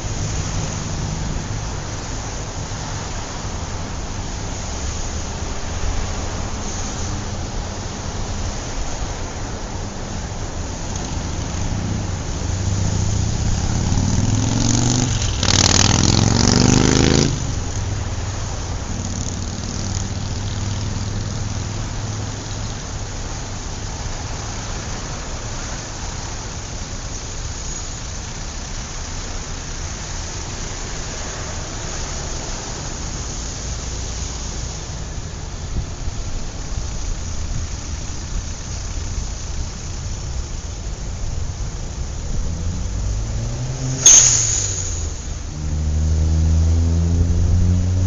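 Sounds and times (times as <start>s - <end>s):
cars driving past: 0.0s - 48.0s
vehicle accelerating close by: 10.7s - 22.7s, 41.9s - 48.0s.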